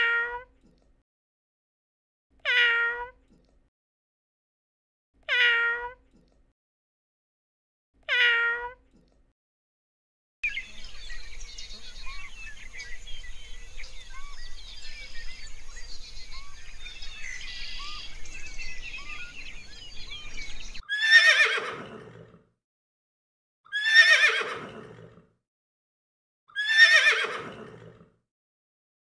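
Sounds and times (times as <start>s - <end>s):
horse whinnying: 20.9s - 22.3s, 23.7s - 25.2s, 26.5s - 28.0s.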